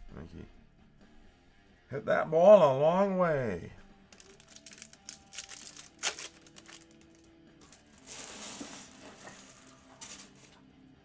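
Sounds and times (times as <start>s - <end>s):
faint background music: 0.0s - 11.0s
foil wrapper tearing and crinkling: 4.1s - 10.6s.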